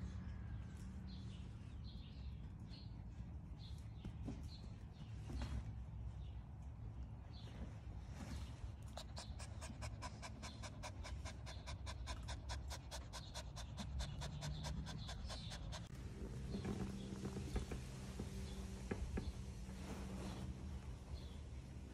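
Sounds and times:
puppy panting: 8.8s - 16.0s.

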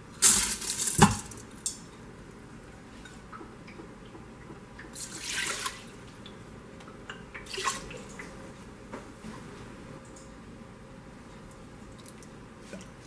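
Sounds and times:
water splashing into pot: 7.4s - 8.3s.

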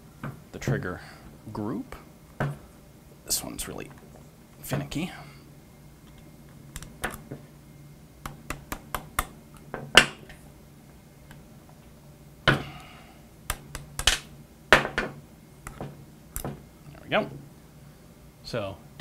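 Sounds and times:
sharp metallic clicks and taps: 6.7s - 7.2s.

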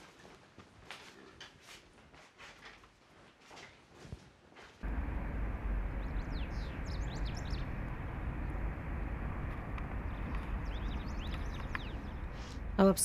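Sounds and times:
low rumble of wind or traffic: 4.8s - 13.0s.

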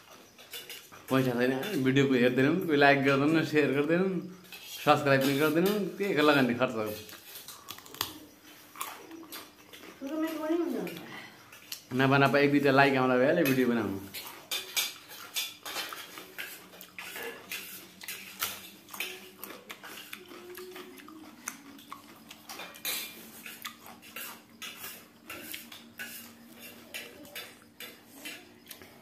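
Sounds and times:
spoons clinking on steel plates: 0.0s - 7.5s, 8.2s - 29.0s.

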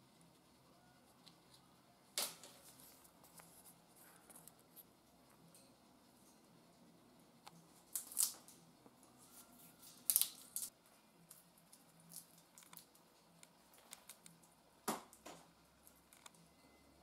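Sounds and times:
parrot cracking peanut shell: 7.9s - 8.6s, 9.8s - 10.7s, 11.3s - 16.4s.

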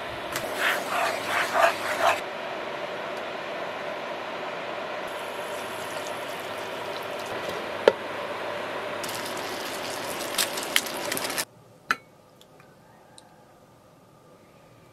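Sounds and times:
stew sizzling in a pan: 5.1s - 7.8s, 9.0s - 11.5s.

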